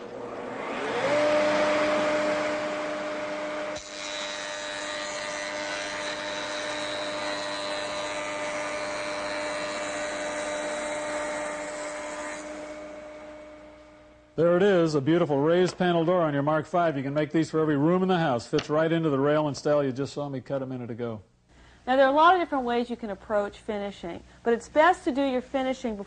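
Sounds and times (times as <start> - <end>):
jointer whining: 0.0 - 14.3.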